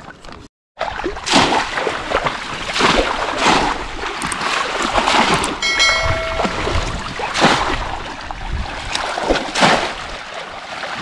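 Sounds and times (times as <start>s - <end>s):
fish traps splashing into water: 0.8s - 11.0s.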